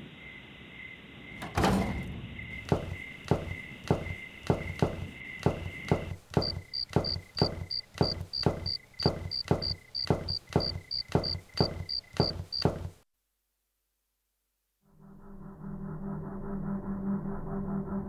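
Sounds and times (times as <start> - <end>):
footsteps walking: 2.6 - 13.0.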